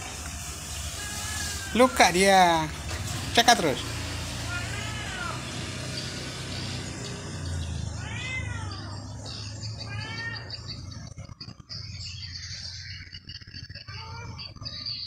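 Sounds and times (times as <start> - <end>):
cat meowing: 0.8 - 2.0, 4.4 - 5.6, 7.7 - 10.8.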